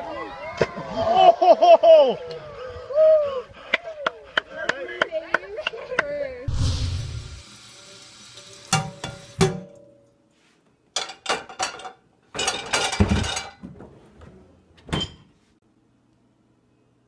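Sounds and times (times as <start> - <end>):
dishes clattering: 11.0 - 13.8.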